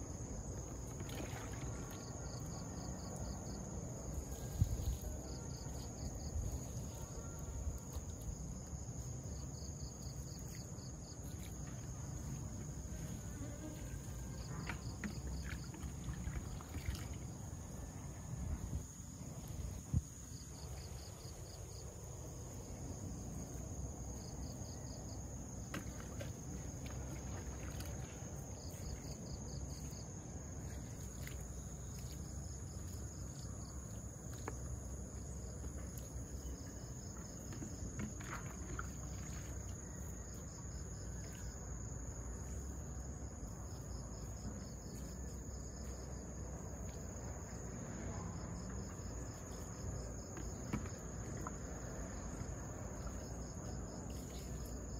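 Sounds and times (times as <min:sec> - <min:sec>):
insect trills: 0:00.0 - 0:54.9
insects buzzing: 0:00.0 - 0:54.9.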